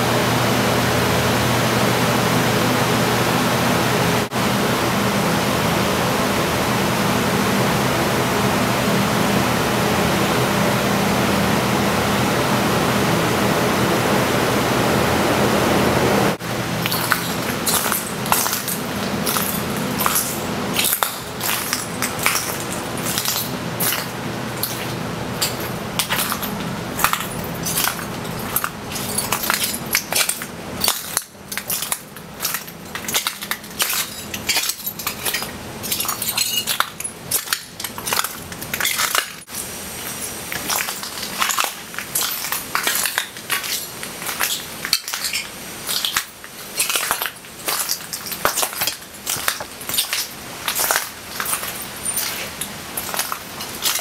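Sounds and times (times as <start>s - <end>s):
footsteps crunching on glass: 16.6s - 54.0s.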